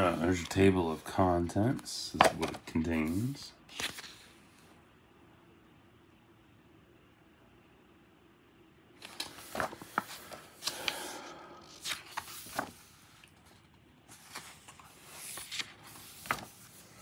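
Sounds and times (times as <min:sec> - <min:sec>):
book pages rustling: 0:00.0 - 0:04.7, 0:09.0 - 0:17.0.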